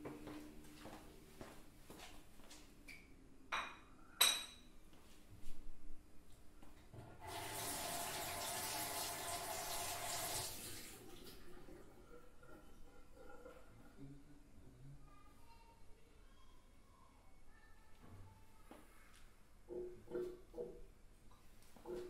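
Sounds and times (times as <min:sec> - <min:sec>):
water running: 0:07.2 - 0:14.0.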